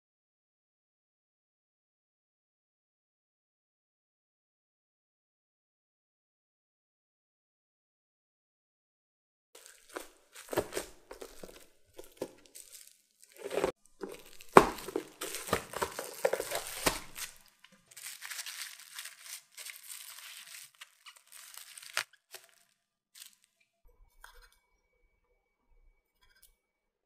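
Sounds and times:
plastic crinkling and rustling: 9.6 - 23.6.

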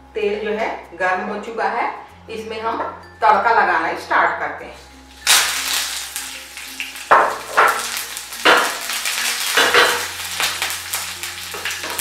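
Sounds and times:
chillies sizzling in hot oil: 5.0 - 12.0.

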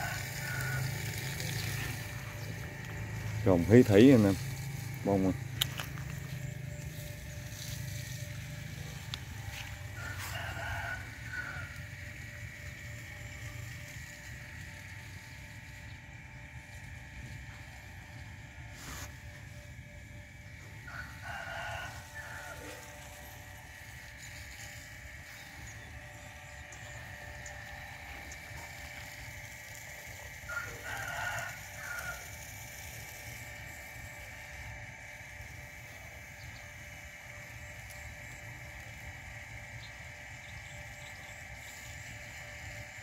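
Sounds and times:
rooster crowing: 0.0 - 2.6, 8.8 - 12.1, 20.7 - 23.9, 30.3 - 32.6.

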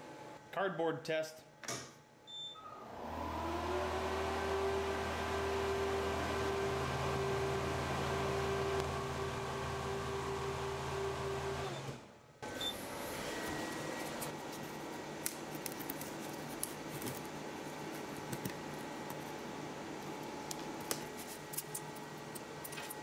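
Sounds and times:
steady machine hum: 3.2 - 23.0.

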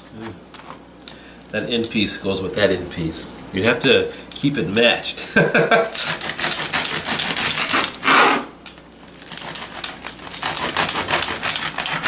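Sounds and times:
knife sawing through crusty bread: 5.9 - 8.5, 9.2 - 12.0.

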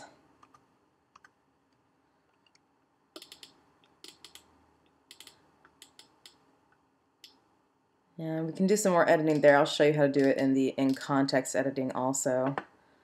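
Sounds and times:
keyboard keys clicking: 3.2 - 4.5, 5.1 - 6.4.

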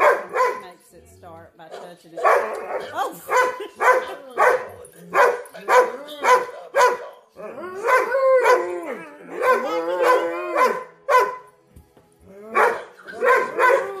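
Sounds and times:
dog barking: 0.0 - 0.7, 1.7 - 7.2, 7.8 - 8.7, 9.3 - 11.5, 12.5 - 14.0.

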